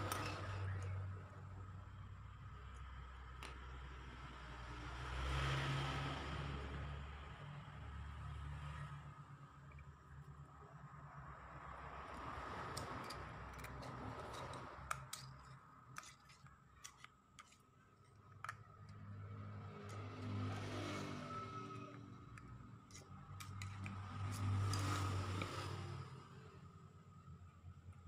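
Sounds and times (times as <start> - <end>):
metal pick clicking and scraping: 0.0 - 1.0, 12.1 - 26.1.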